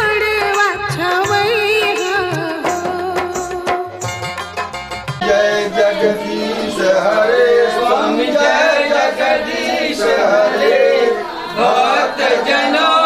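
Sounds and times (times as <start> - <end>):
steady drum beats: 0.0 - 5.4
several voices singing together: 5.2 - 13.0.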